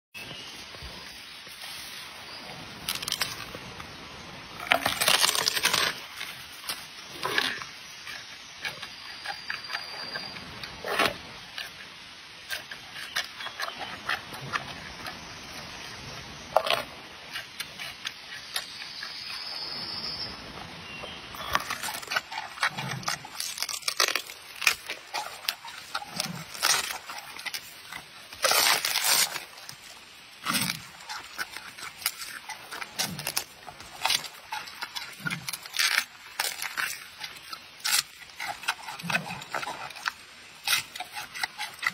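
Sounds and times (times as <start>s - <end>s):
panda chewing bamboo: 21.4s - 41.9s.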